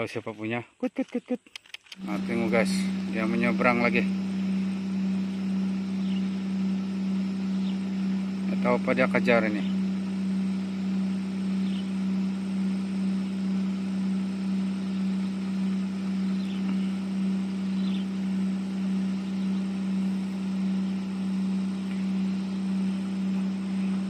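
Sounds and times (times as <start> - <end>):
motor hum: 1.8 - 24.0
faint bird chirps: 6.0 - 6.3, 11.6 - 11.9, 16.3 - 17.0, 17.7 - 18.2.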